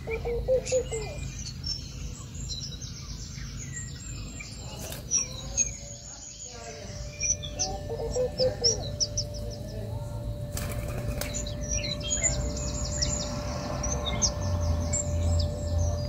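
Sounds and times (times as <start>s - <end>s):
small birds chirping: 0.0s - 16.0s
dove wings flapping: 10.5s - 11.5s.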